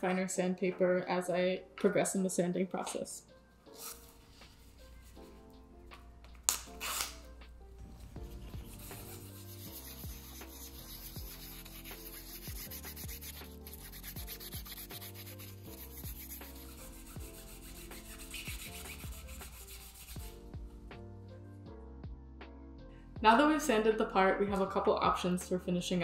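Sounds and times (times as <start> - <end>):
background music: 0.0 - 26.0
wet sandpaper rubbing on resin: 8.4 - 20.3.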